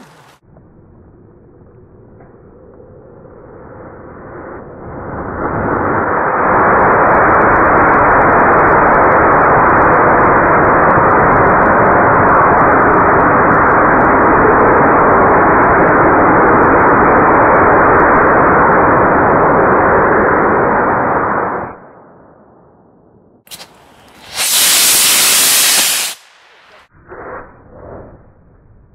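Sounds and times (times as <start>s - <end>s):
rocket motor rushing roar: 23.5s - 26.9s.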